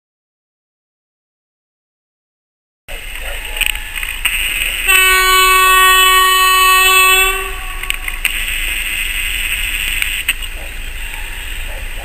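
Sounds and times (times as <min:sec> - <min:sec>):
approaching trains: 0:02.9 - 0:12.0
locomotive horn blast: 0:04.8 - 0:08.2.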